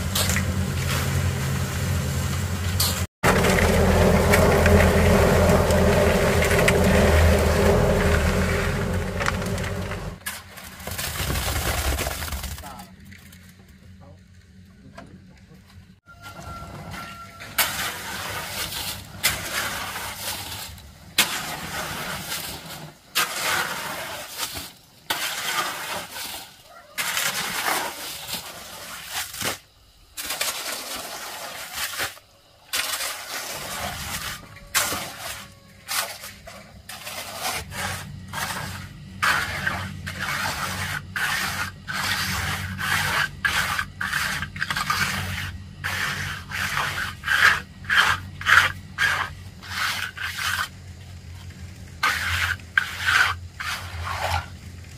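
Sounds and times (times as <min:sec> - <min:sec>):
low steady hum: 0:00.0 - 0:11.1
rough scraping strokes: 0:02.8 - 0:10.4, 0:16.7 - 0:29.6, 0:30.2 - 0:54.6.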